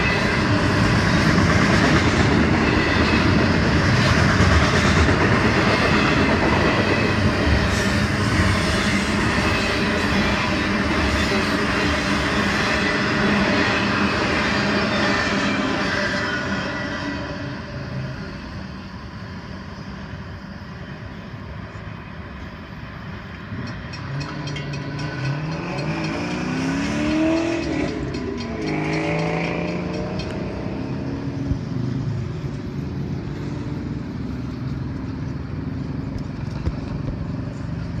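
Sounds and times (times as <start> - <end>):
car engines accelerating: 24.1 - 37.9.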